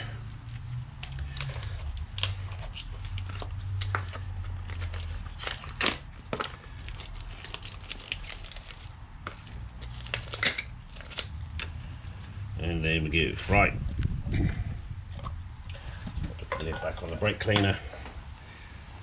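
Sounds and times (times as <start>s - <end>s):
packaging crinkling and tearing: 0.3s - 12.4s.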